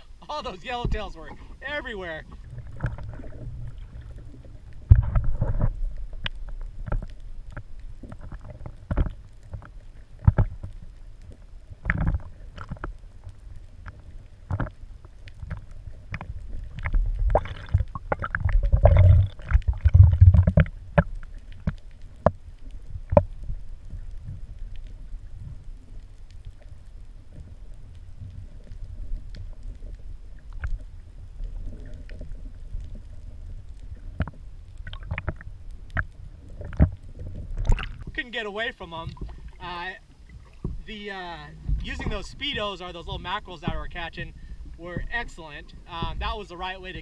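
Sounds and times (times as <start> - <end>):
underwater rumble: 0.0 - 47.0
underwater clicks and knocks: 2.2 - 25.0, 28.2 - 38.2, 39.0 - 40.9.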